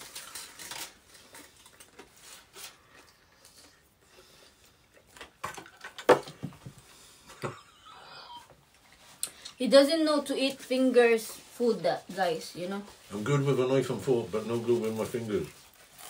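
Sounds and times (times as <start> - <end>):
crunching and chewing: 0.0 - 6.0.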